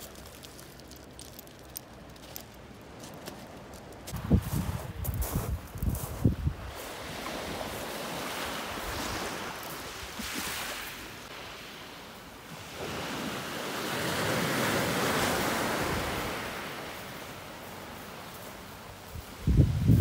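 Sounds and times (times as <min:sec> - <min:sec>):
waves washing up a pebble beach: 0:00.0 - 0:02.6, 0:06.6 - 0:19.1.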